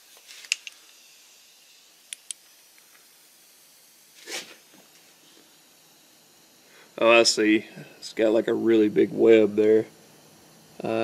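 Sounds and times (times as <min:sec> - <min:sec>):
short hiss: 0:04.1 - 0:04.7.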